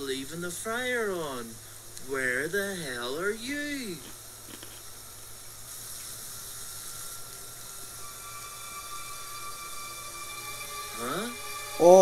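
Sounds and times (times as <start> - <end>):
deep fryer sizzling: 1.6 - 9.9
faint high tone: 10.9 - 12.0.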